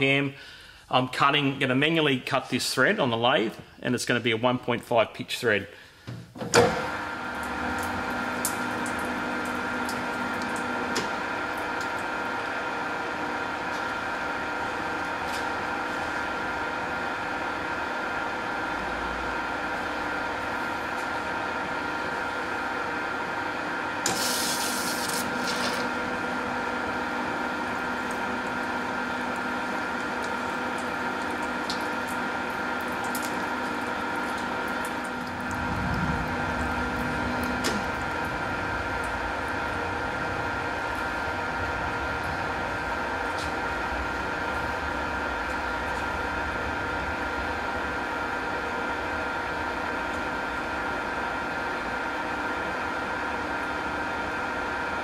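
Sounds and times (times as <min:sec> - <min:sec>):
lathe hum and gear whine: 0:06.7 - 0:55.0.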